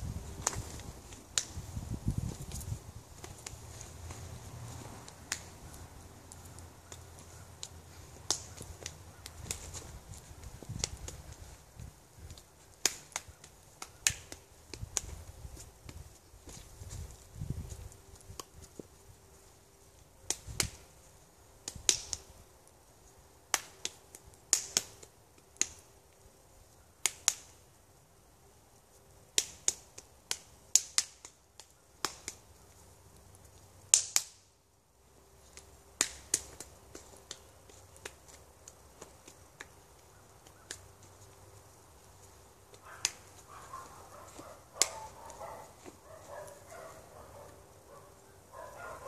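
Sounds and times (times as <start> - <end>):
hand claps and palm slaps: 6.9 - 9.7, 12.8 - 15.2, 23.5 - 25.8, 27.0 - 27.6, 29.3 - 32.5, 33.9 - 34.4, 36.0 - 38.3.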